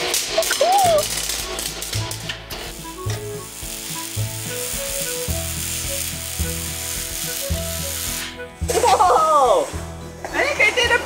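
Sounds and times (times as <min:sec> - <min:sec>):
welding arc crackling hiss: 0:00.0 - 0:09.8
background music with bass line: 0:00.0 - 0:11.0.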